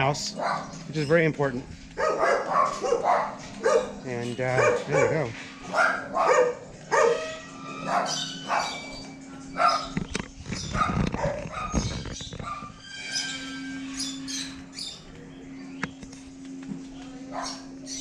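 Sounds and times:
dog barking: 0.3s - 0.8s, 2.0s - 8.8s, 9.6s - 10.0s, 10.7s - 12.8s, 17.3s - 17.7s.

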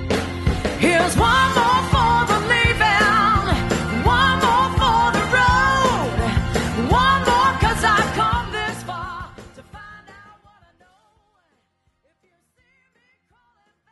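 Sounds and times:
song with singer and band: 0.0s - 13.6s.

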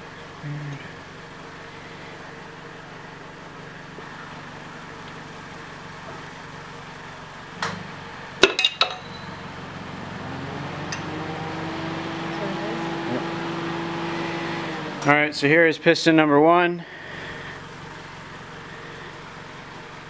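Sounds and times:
sharp metallic clinks: 8.4s - 9.4s.

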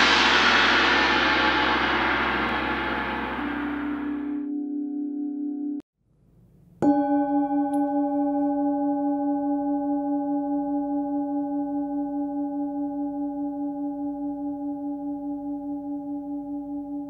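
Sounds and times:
singing bowl ringing: 6.8s - 17.0s.

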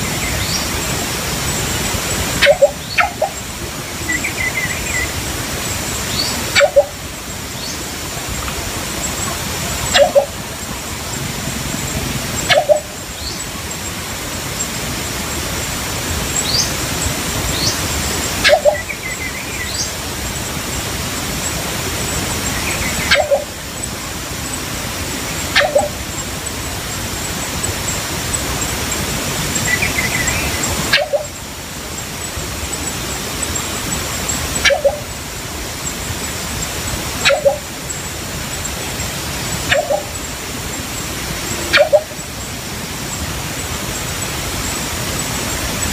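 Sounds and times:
small birds chirping: 0.0s - 15.7s, 16.3s - 45.9s
steady rushing hiss: 0.0s - 45.9s
bird giving low calls: 2.3s - 3.5s, 6.1s - 7.1s, 9.7s - 13.5s, 22.6s - 23.6s, 25.5s - 26.0s, 34.5s - 35.2s, 37.2s - 37.8s, 39.6s - 40.3s.

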